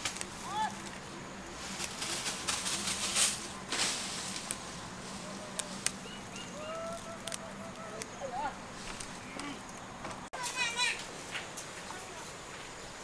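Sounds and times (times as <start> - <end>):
herb leaves rustling: 0.0 - 13.0
sharp clicks: 7.2 - 8.2.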